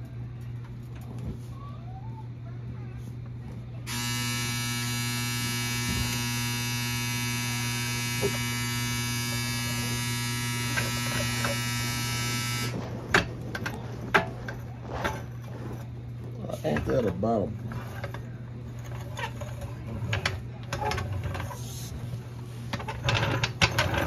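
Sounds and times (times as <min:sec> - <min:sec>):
electric buzz: 0:03.9 - 0:15.9.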